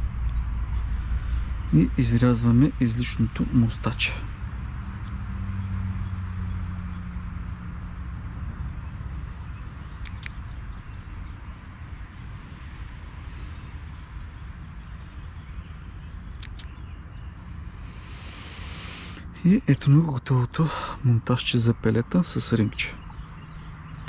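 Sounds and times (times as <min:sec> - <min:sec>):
low hum: 0:00.0 - 0:24.0
faint small clicks: 0:10.0 - 0:10.4, 0:16.4 - 0:16.8.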